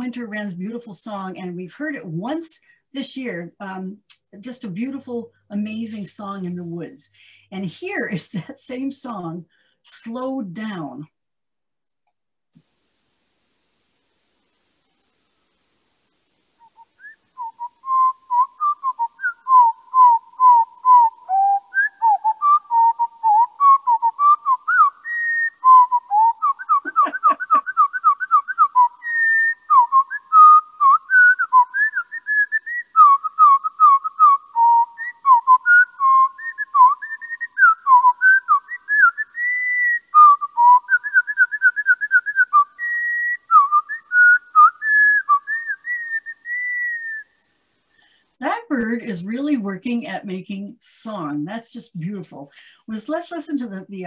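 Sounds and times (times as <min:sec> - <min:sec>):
slowed bird song whistled notes: 0:16.5 - 0:48.2.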